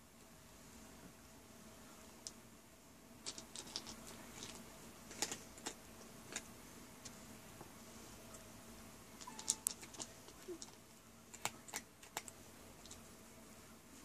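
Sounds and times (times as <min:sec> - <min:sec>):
cat crunching dry kibble: 0:03.2 - 0:06.5, 0:09.2 - 0:13.0.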